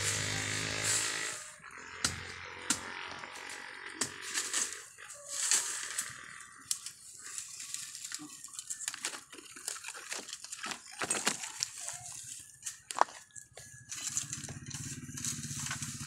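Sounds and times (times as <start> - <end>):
dry leaves and twigs rustling: 0.0 - 16.0
twigs snapping: 5.5 - 13.2.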